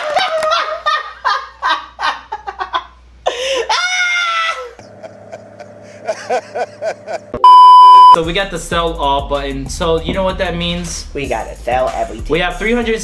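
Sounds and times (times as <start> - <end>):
long high laugh: 0.0 - 7.4
men laughing hard: 0.0 - 7.4.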